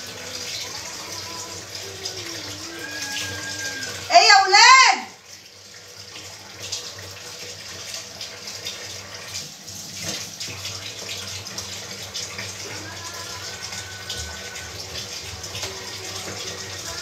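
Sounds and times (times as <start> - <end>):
tap running into sink: 9.3 - 17.0.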